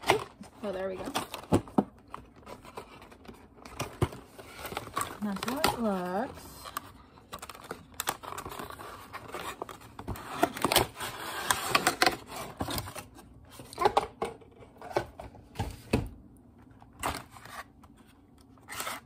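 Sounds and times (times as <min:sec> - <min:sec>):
paper and foil rustling: 0:00.0 - 0:13.9.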